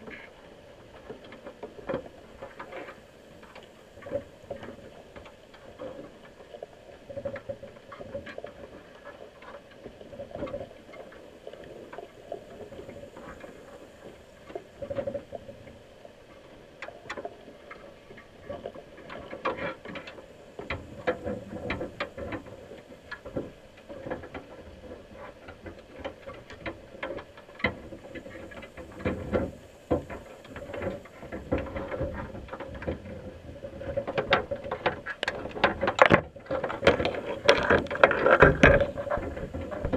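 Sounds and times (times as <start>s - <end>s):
steady low hum: 19.7s - 39.9s
crab shells clicking on plastic and mesh: 35.1s - 39.9s.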